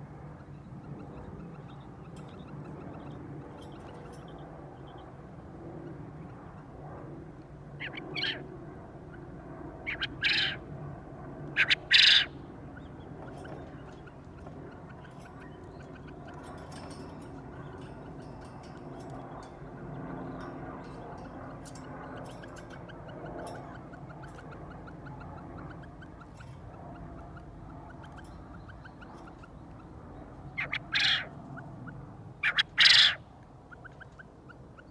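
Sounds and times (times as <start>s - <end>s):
faint outdoor background: 0.0s - 34.9s
quail crowing: 7.8s - 8.4s, 9.8s - 10.6s, 11.5s - 12.4s, 30.6s - 31.3s, 32.4s - 33.2s.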